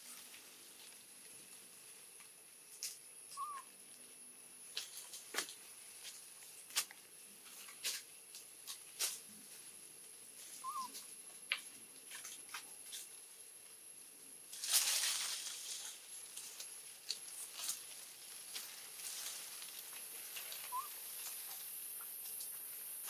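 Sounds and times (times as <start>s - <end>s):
faint high whine: 0.0s - 23.0s
monkey chirps: 3.3s - 3.7s, 10.6s - 11.0s, 20.6s - 21.0s.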